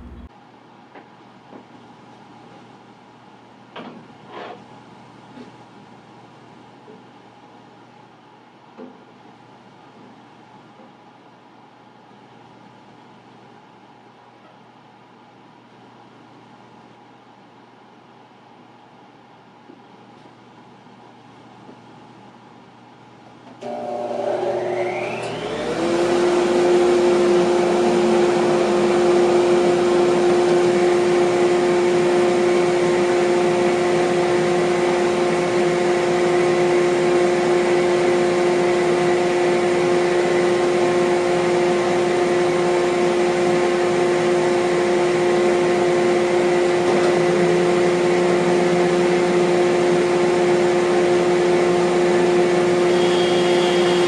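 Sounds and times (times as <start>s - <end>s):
bandsaw motor whine and hum: 0.0s - 0.3s, 23.6s - 54.0s.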